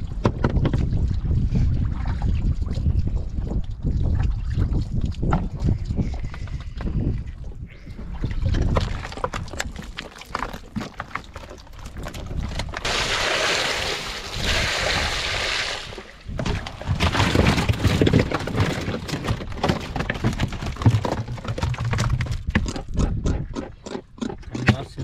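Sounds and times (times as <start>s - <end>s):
water splashing over fish: 12.7s - 17.4s
knocks and handling noises: 16.4s - 25.0s.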